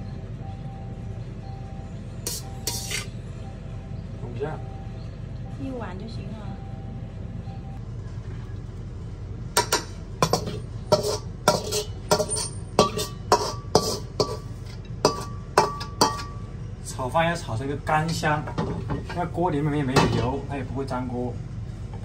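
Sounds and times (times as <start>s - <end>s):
metal spatula clinking on a wok: 2.3s - 3.1s, 9.6s - 16.4s.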